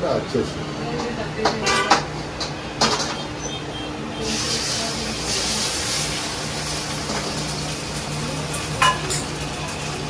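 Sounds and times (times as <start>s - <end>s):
eggs sizzling in hot oil: 4.2s - 10.0s.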